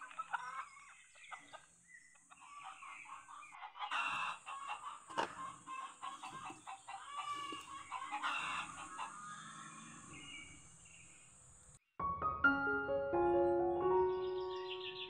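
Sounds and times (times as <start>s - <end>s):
chickens clucking: 0.0s - 11.8s
music: 12.0s - 15.0s.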